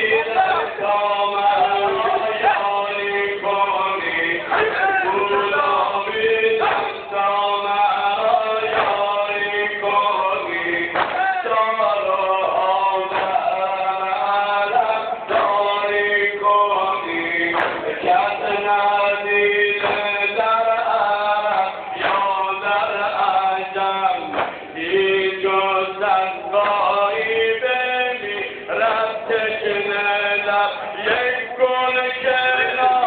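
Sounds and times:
man singing chant-like melody: 0.0s - 33.0s.

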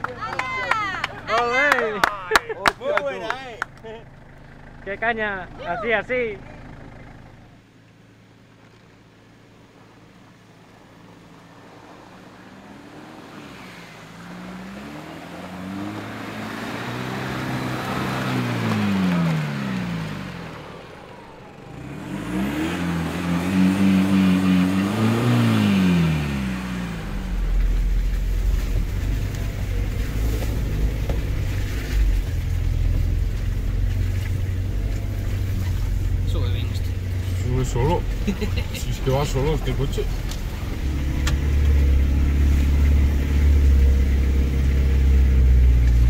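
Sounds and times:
off-road vehicle engine revving: 0.0s - 46.0s
steady deep rumble: 19.5s - 46.0s.

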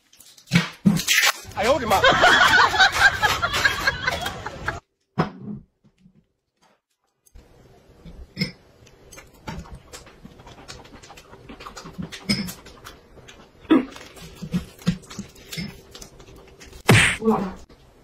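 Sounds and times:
chewing: 8.8s - 16.8s.

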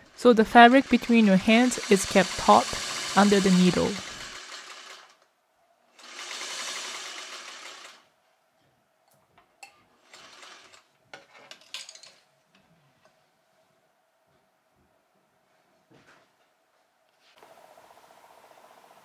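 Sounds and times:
sewing machine stitching: 0.0s - 5.2s, 6.0s - 8.1s, 10.0s - 10.9s.

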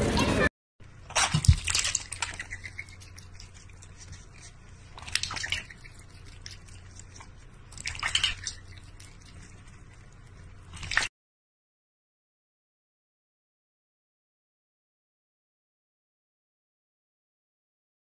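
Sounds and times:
cat lapping water from metal bowl: 1.1s - 11.1s.

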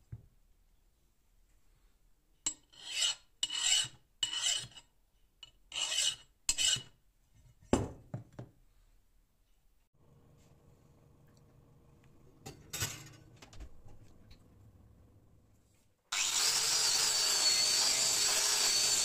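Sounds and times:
file rasping on steel: 2.5s - 7.0s, 16.2s - 19.0s.

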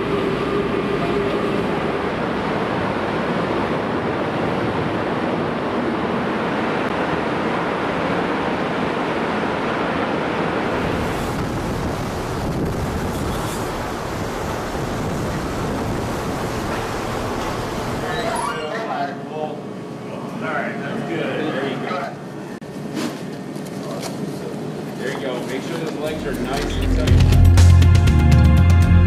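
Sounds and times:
sea water rushing and churning: 0.0s - 18.5s
wind buffeting microphone: 10.6s - 18.0s.

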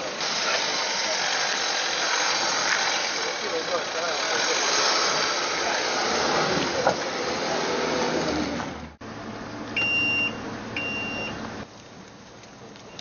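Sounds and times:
car engine: 0.0s - 12.8s
road noise: 0.0s - 13.0s
short electronic beeps: 9.8s - 11.4s.

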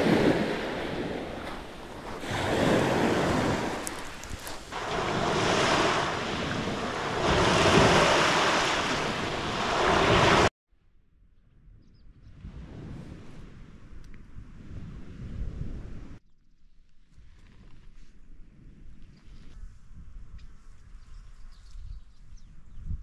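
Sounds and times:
sea waves surging onto shore: 0.0s - 10.5s
wind buffeting microphone: 0.0s - 10.5s, 11.6s - 16.2s, 17.5s - 23.0s.

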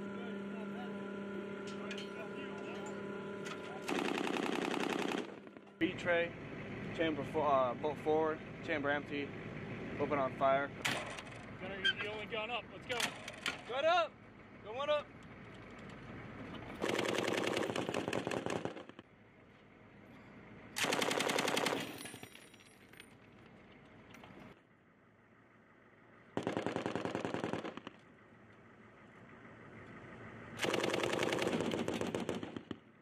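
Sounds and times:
machine gun automatic fire: 3.7s - 5.7s, 16.8s - 19.0s, 20.8s - 22.3s, 26.4s - 28.1s, 30.6s - 32.9s.

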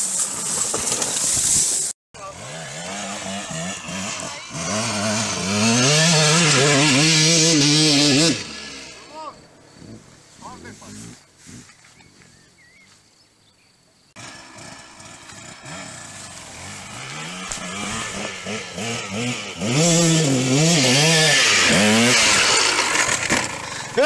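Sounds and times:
dirt bike engine revving: 2.2s - 11.2s, 14.2s - 24.0s.

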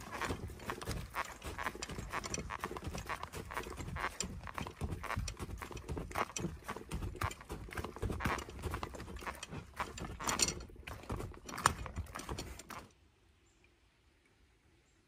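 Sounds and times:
footsteps on dirt trail: 0.0s - 12.9s.

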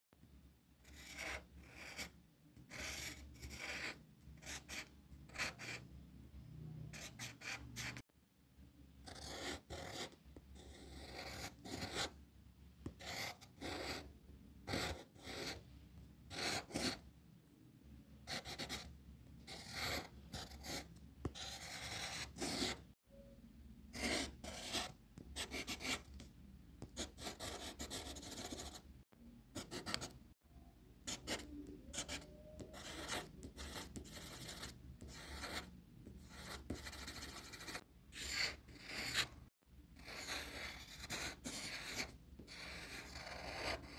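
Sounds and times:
pencil scratching on paper: 0.8s - 5.8s, 7.0s - 8.0s, 9.0s - 12.2s, 12.9s - 14.1s, 14.7s - 15.6s, 16.3s - 17.0s, 18.3s - 18.9s, 19.5s - 22.9s, 24.0s - 26.2s, 26.8s - 28.8s, 29.6s - 30.2s, 31.1s - 39.4s, 40.0s - 43.9s.

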